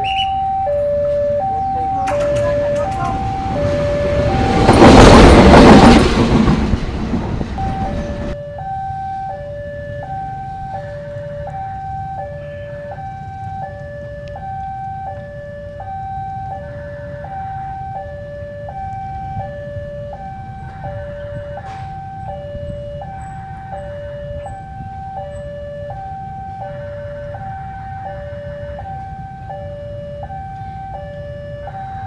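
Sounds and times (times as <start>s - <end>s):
level crossing alarm two-tone: 0.0s - 6.0s, 7.5s - 32.0s
locomotive passing rumble: 0.0s - 32.0s.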